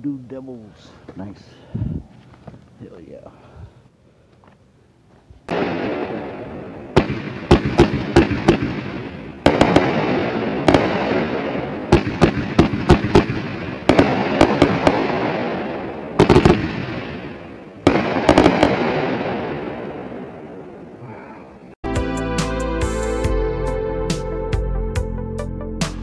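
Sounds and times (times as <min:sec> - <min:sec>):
fireworks bangs: 0:05.5 - 0:21.0
sharp firework cracks: 0:05.5 - 0:21.0.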